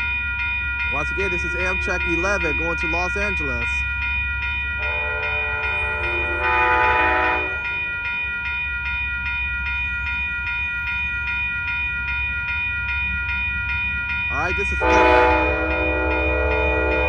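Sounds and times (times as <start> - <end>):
railroad crossing bell ringing: 0.0 - 17.0
locomotive horn blast: 4.8 - 7.6, 14.8 - 17.0.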